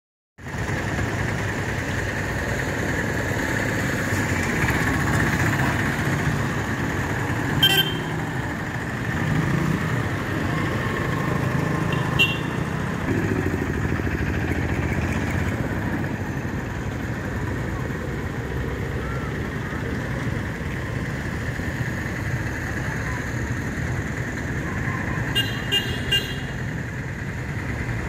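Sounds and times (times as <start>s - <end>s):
motorcycle engines passing: 0.4s - 28.0s.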